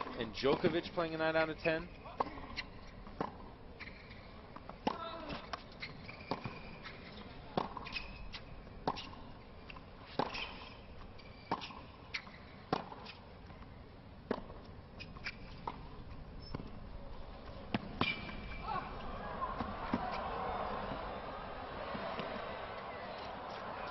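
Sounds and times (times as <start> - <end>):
shoe squeaks on court: 0.6 - 3.0, 3.8 - 13.2, 15.0 - 16.8, 17.7 - 18.8
racquet hitting tennis ball: 7.6 - 8.1, 12.7 - 13.2, 14.3 - 16.7, 17.6 - 23.9.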